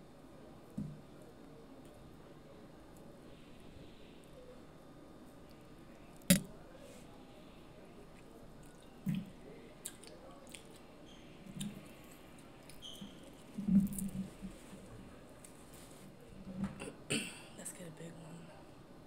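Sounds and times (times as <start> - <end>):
chewing: 9.8 - 10.8.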